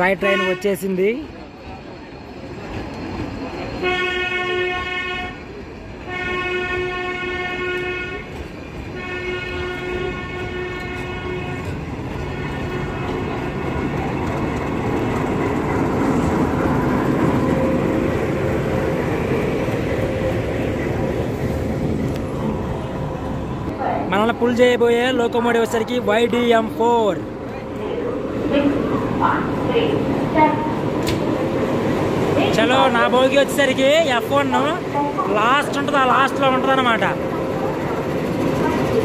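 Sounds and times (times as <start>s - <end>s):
train wheels on rails: 1.2s - 6.1s, 6.8s - 39.0s
train horn blasts: 3.8s - 13.9s.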